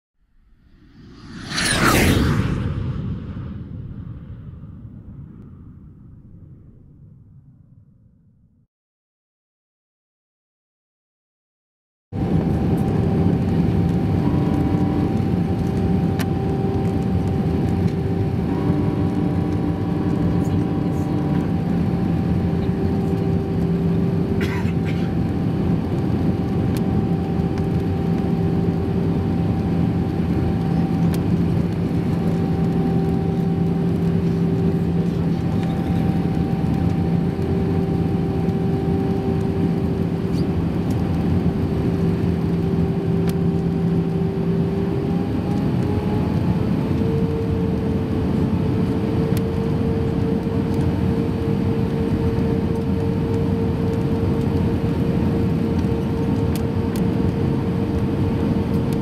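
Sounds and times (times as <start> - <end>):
airflow rushing: 0.4 - 7.0
jet engines droning: 0.4 - 7.3, 12.2 - 59.0.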